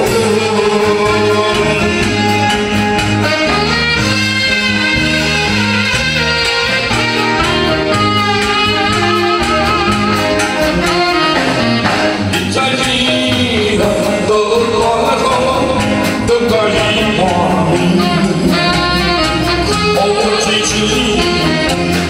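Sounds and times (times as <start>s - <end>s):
man singing into microphone: 0.0s - 2.6s, 12.1s - 22.0s
saxophone melody: 0.0s - 13.4s, 15.2s - 22.0s
live band playing slow song: 0.0s - 22.0s.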